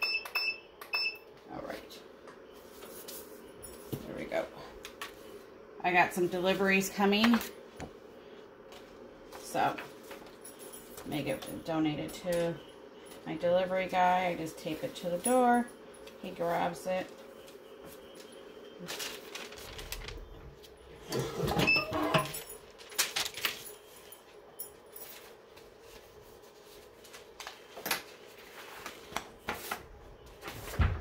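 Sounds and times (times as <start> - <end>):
paper rustling: 18.2 - 20.8, 22.5 - 24.3, 25.0 - 31.0.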